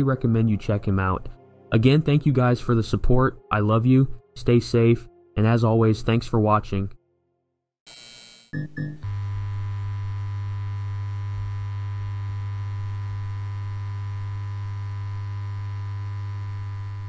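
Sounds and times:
electrical hum: 8.6s - 17.0s.

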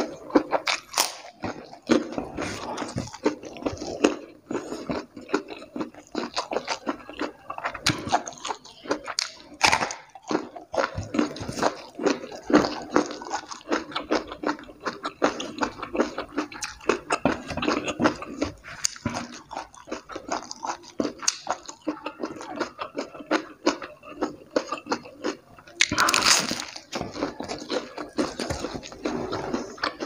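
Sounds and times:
wet clicky chewing: 0.0s - 30.0s.

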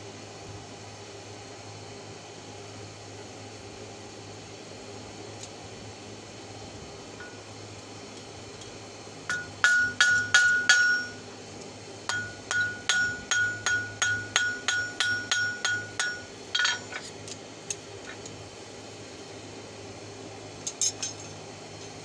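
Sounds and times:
hammer striking hot steel on anvil: 7.2s - 7.4s, 9.3s - 11.3s, 12.1s - 17.1s, 20.7s - 21.3s.

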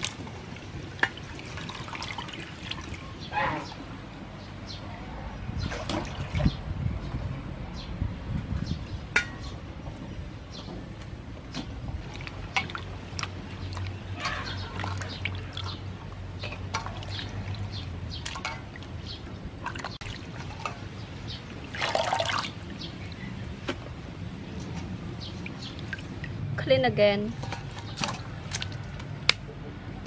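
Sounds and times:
water splashing in a metal bowl: 0.0s - 3.1s, 11.5s - 23.1s, 24.6s - 26.4s, 27.3s - 29.0s.

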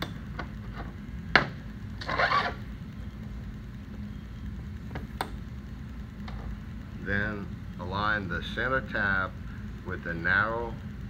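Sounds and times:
steady low hum: 0.0s - 11.0s
metal scraping: 2.0s - 2.6s.

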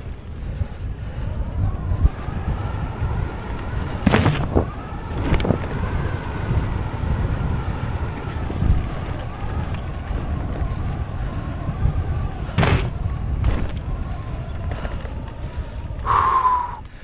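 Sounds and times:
bike tyres rumbling over trail: 0.0s - 17.0s
wind buffeting microphone: 0.0s - 17.0s.

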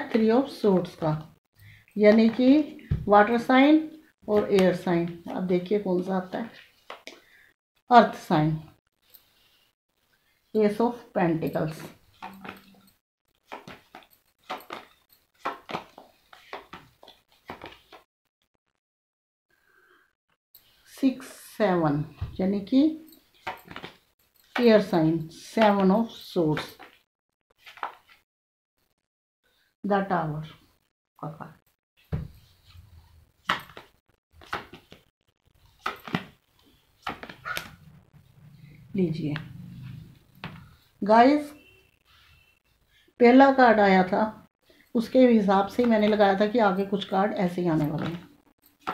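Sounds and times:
cards being shuffled: 13.4s - 18.0s, 23.4s - 24.0s, 27.6s - 28.2s, 33.4s - 35.0s, 35.6s - 37.8s.

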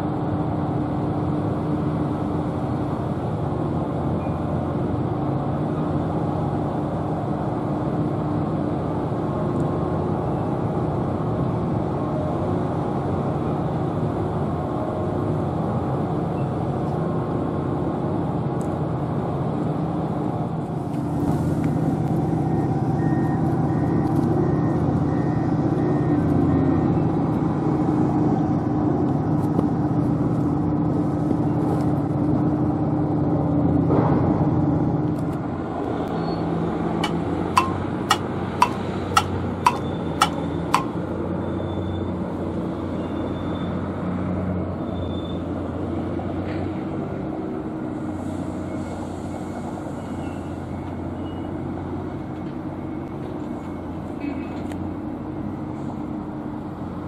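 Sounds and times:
sharp clicks: 37.0s - 40.9s.

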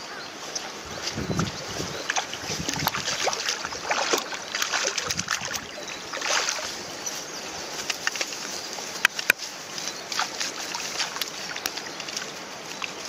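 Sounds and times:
fish splashing in water: 1.0s - 7.0s, 10.0s - 13.0s.

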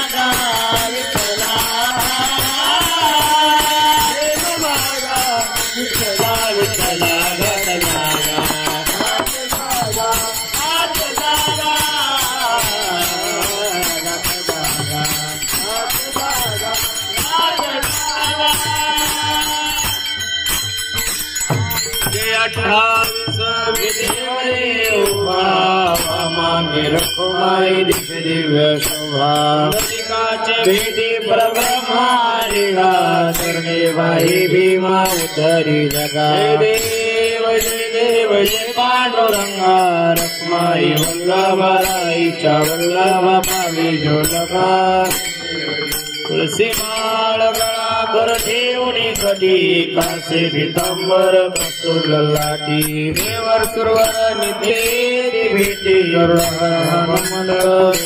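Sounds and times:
men singing in unison: 0.0s - 58.0s
two-headed hand drum: 0.3s - 25.3s.

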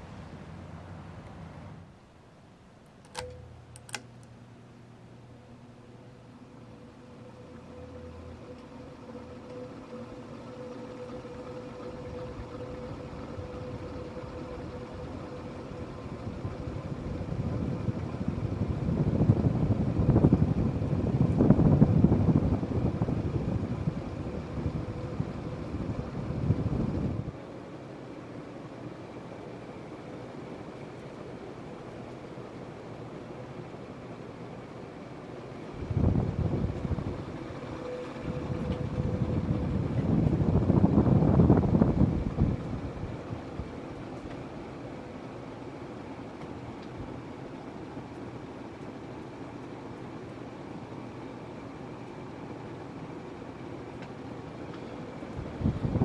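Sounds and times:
ceiling fan air buffeting microphone: 0.0s - 56.0s
faint steady hum: 0.0s - 56.0s
wind buffeting microphone: 16.1s - 27.3s, 35.8s - 43.8s, 55.4s - 56.0s.

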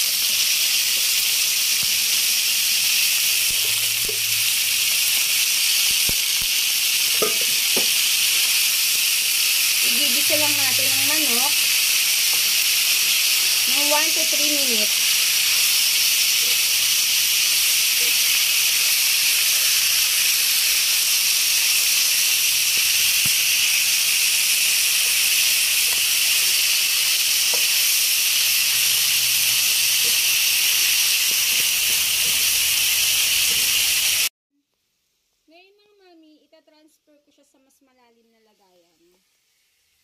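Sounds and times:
chicken sizzling in frying pan: 0.0s - 34.3s.

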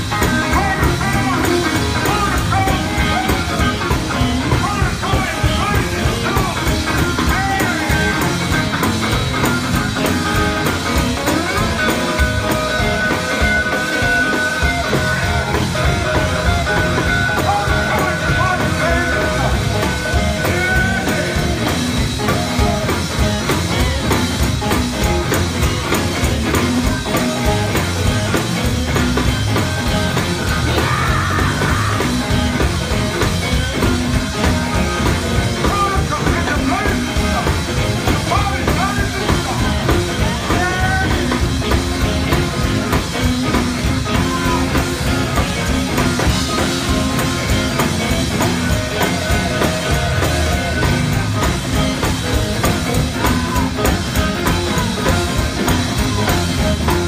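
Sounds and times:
bass guitar: 0.0s - 57.0s
drum kit: 0.0s - 57.0s
electric guitars: 0.0s - 57.0s
keyboard: 0.0s - 57.0s.

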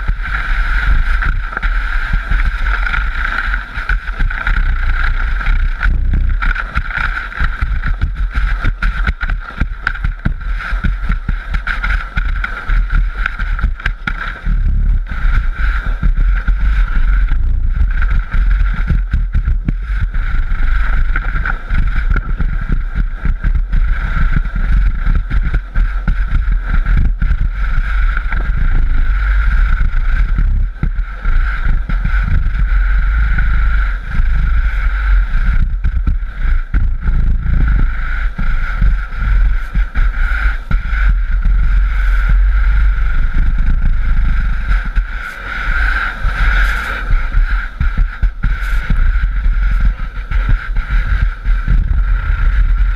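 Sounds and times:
wind buffeting microphone: 0.0s - 52.9s
sandboard rushing over sand: 44.6s - 49.1s.

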